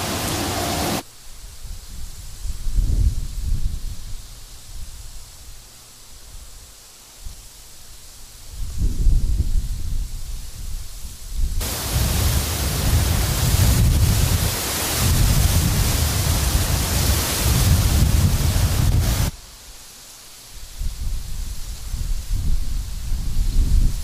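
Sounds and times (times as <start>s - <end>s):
dry grass rustling in wind: 0.0s - 24.0s
low wind rumble: 8.5s - 19.4s, 20.7s - 24.0s.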